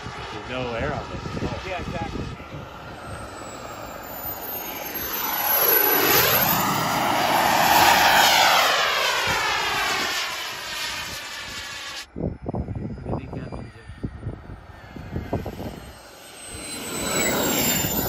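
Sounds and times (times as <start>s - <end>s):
jet turbine engine flyby: 0.0s - 18.0s.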